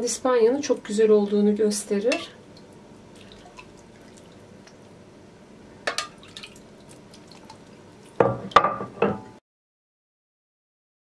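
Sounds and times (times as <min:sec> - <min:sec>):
syrup dripping and trickling: 0:02.5 - 0:05.0, 0:06.1 - 0:08.2
ladle knocking saucepan: 0:08.2 - 0:09.3.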